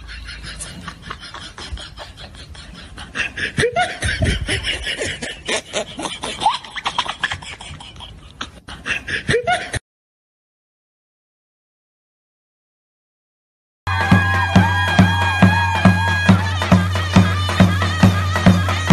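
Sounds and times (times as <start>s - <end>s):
laughter-like voice sounds: 0.0s - 9.8s.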